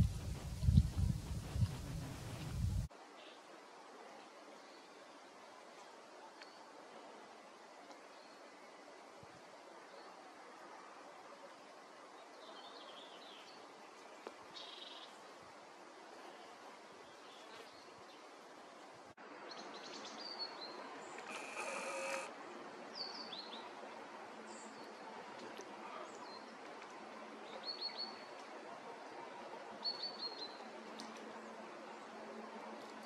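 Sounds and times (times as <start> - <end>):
background hiss: 0.0 - 20.4, 21.0 - 24.8
loud buzzy sound: 21.3 - 22.3.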